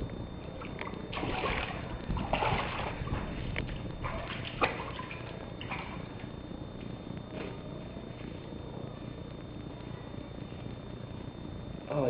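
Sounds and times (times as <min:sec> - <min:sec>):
water splashing and sloshing: 0:00.0 - 0:07.6.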